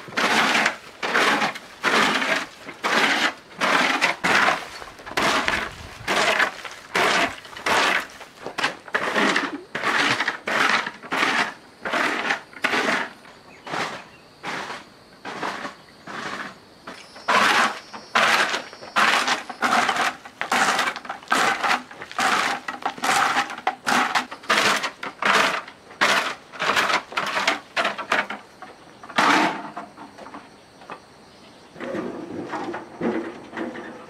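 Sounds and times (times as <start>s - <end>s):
rough hand scraping strokes: 0.0s - 28.4s.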